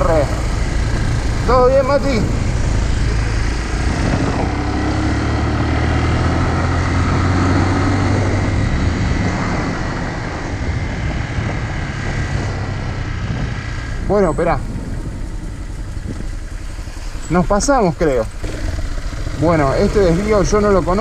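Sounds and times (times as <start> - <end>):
motorcycle engine cruising: 0.0 - 21.0
road noise: 0.0 - 21.0
wind noise: 0.0 - 21.0.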